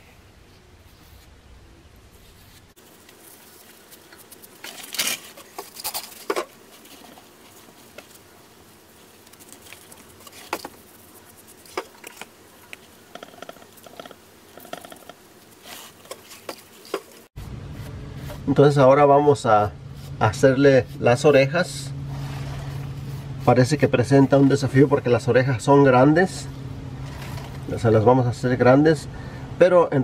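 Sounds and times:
scrapes on cement: 0:22.1 - 0:24.6, 0:27.0 - 0:27.7.

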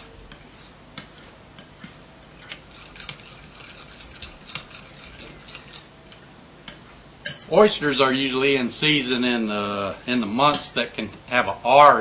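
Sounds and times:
utensils and dishes clinking: 0:01.0 - 0:07.6, 0:10.5 - 0:10.8.

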